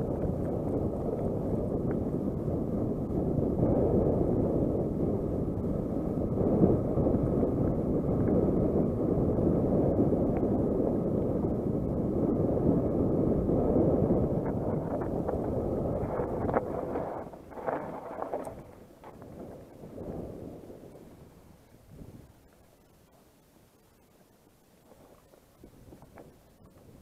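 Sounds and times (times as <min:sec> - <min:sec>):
bike rumbling over gravel: 0:00.0 - 0:04.6, 0:13.9 - 0:21.5
wind buffeting microphone: 0:00.0 - 0:22.9, 0:24.4 - 0:27.0.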